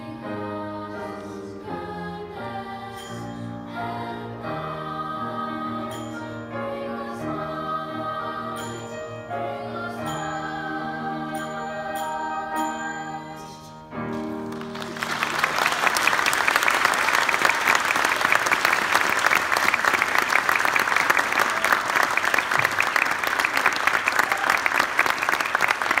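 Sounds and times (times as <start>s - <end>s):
choir singing a chord: 0.0s - 14.0s
audience applause: 14.4s - 26.0s.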